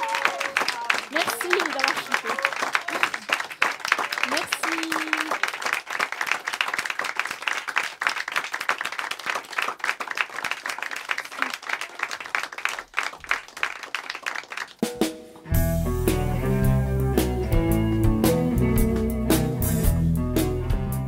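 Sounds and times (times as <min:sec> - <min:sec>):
audience applauding: 0:00.0 - 0:15.1
guitar music: 0:15.5 - 0:21.0.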